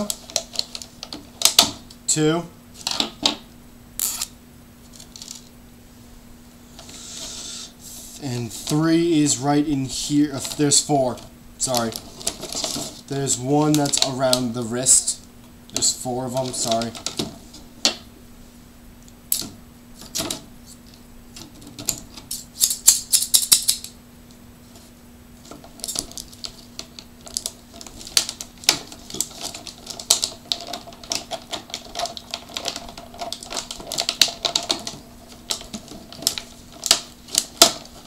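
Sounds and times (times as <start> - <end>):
plastic packaging crackling: 0.0 - 2.0, 8.5 - 18.0, 25.4 - 38.0.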